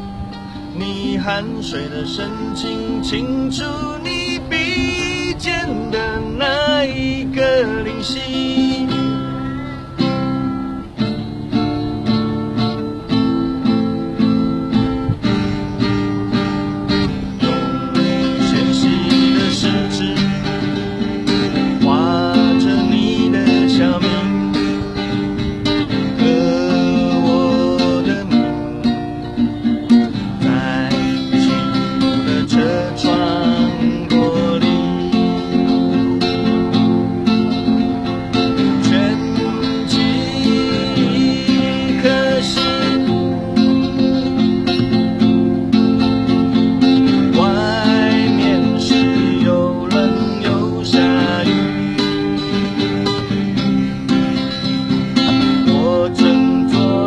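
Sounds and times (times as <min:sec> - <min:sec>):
acoustic guitar strumming: 0:00.0 - 0:57.0
person singing: 0:00.7 - 0:10.9, 0:17.0 - 0:25.2, 0:25.8 - 0:44.4, 0:47.0 - 0:52.8, 0:54.7 - 0:57.0.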